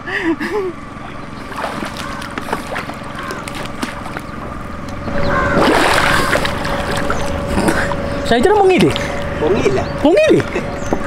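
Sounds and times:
faint steady hum: 0:00.0 - 0:11.0
water sloshing and splashing: 0:01.0 - 0:09.3.

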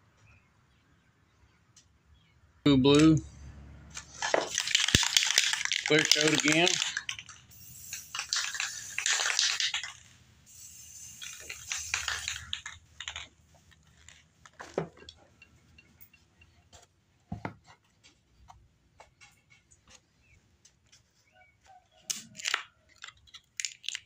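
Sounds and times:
spray paint hissing: 0:04.0 - 0:13.7
object handling clicks and knocks: 0:11.2 - 0:21.0.

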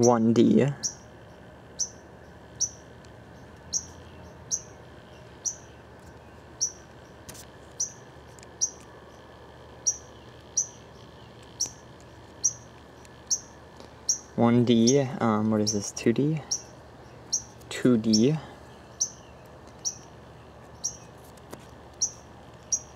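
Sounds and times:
bird chirping: 0:00.0 - 0:21.2, 0:21.9 - 0:22.9.

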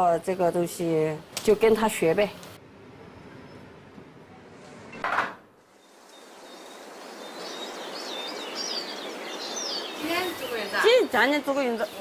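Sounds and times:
small birds chirping: 0:05.7 - 0:12.0.

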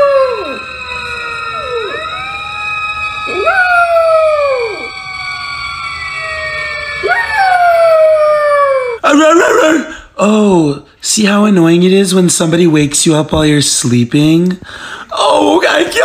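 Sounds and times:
puppy howling: 0:00.0 - 0:09.0.

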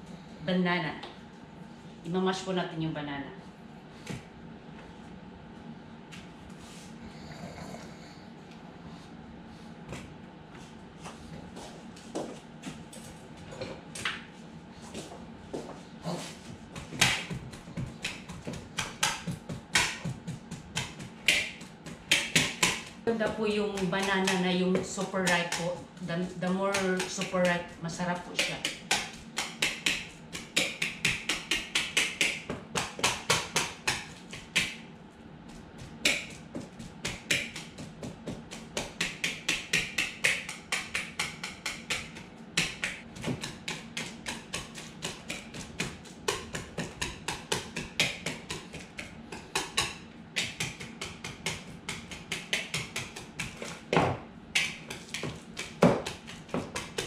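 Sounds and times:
fork mashing bananas in a bowl: 0:16.1 - 0:57.0.

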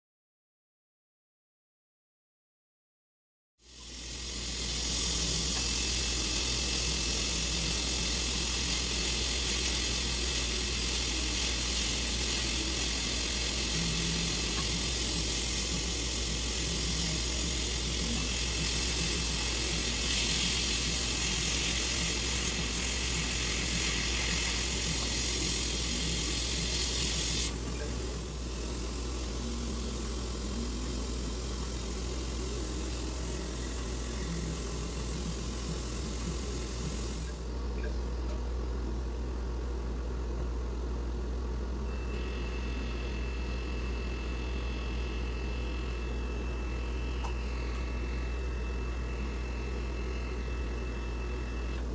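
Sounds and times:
dental suction hissing: 0:03.6 - 0:37.5
low equipment hum: 0:03.6 - 0:51.9.

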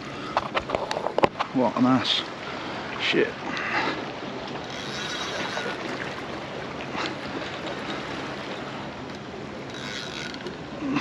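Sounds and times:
sea water lapping against rocks: 0:02.7 - 0:10.8.

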